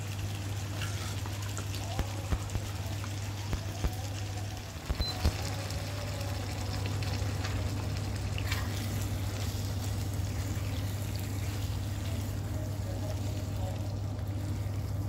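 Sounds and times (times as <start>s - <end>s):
food sizzling in a frying pan: 0.0s - 15.0s
rice boiling in a pot: 0.0s - 15.0s
steady low hum: 0.0s - 15.0s
spatula stirring: 8.2s - 15.0s.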